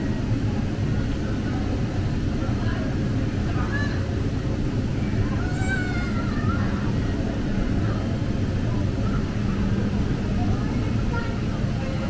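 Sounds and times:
faint high voices calling: 0:05.2 - 0:07.4.

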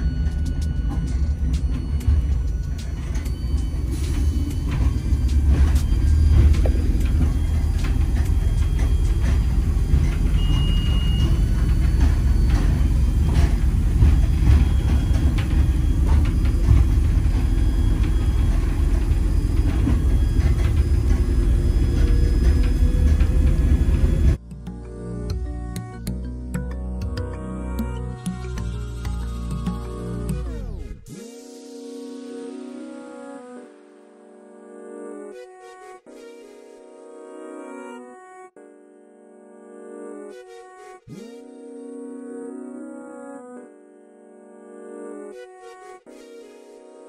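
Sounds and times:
train rumbling on rails: 0:00.0 - 0:24.8
wheels clicking and knocking: 0:00.0 - 0:30.6.

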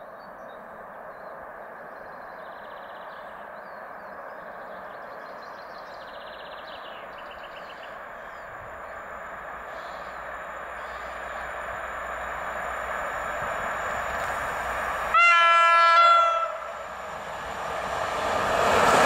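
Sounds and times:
train approaching at speed: 0:00.0 - 0:19.0
small birds trilling: 0:05.2 - 0:12.2.

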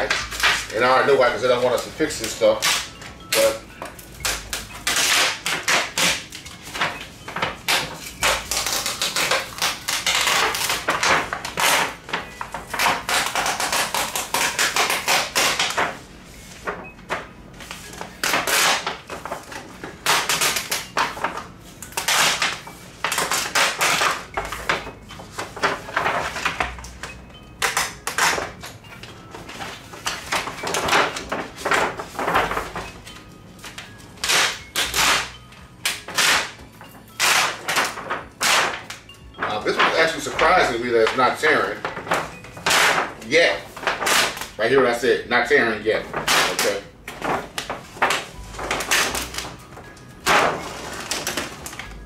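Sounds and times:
plastic sheet crinkling: 0:04.3 - 0:16.9, 0:29.2 - 0:52.0
tape crackling as peeled: 0:07.6 - 0:15.9.

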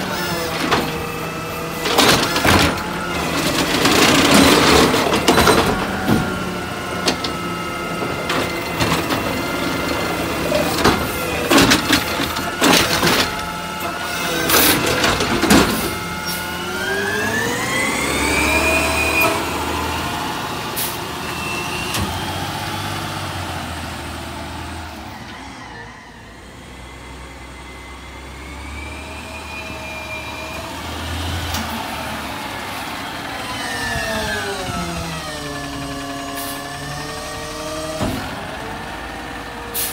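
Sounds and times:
truck engine revving: 0:00.0 - 0:39.9
knocks and bangs of trash cart: 0:01.8 - 0:13.6, 0:14.4 - 0:16.2.

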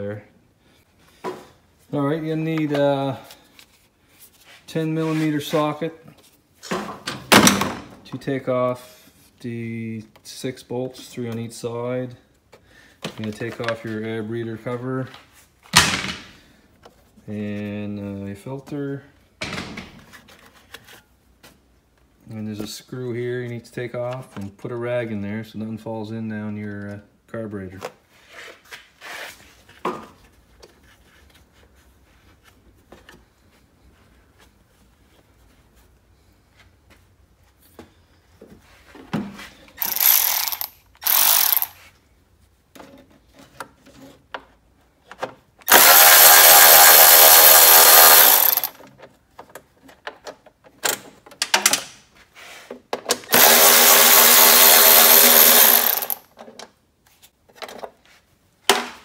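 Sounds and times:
electric ratchet motor whining: 0:39.8 - 0:41.8, 0:45.7 - 0:48.8, 0:53.3 - 0:56.2
metal parts clicking and knocking: 0:39.8 - 0:41.8, 0:45.7 - 0:51.9, 0:53.3 - 0:56.6.

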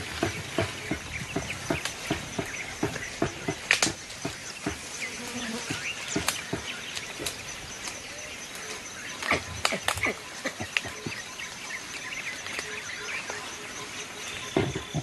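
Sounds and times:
insects buzzing: 0:00.0 - 0:15.0
leaves and stems snapping: 0:03.2 - 0:04.0.

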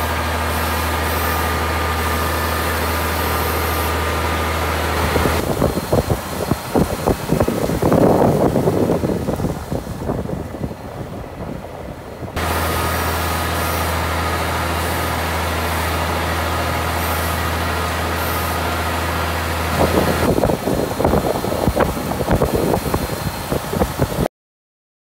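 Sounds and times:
tractor engine humming: 0:00.0 - 0:24.3
wind: 0:00.0 - 0:24.3.

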